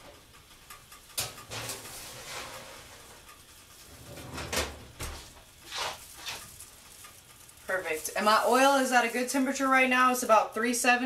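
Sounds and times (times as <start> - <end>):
kitchen knocks and clatters: 1.2 - 6.6.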